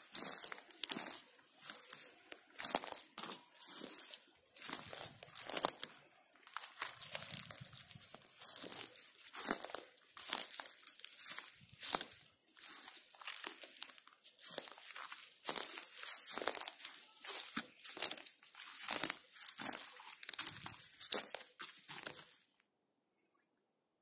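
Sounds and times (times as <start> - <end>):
footsteps crunching on forest floor: 0.0 - 22.5.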